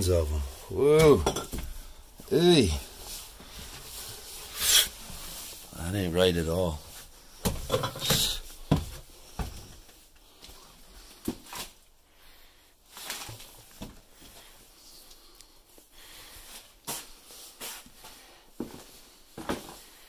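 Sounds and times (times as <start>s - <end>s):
short rustles and knocks: 6.8s - 11.8s.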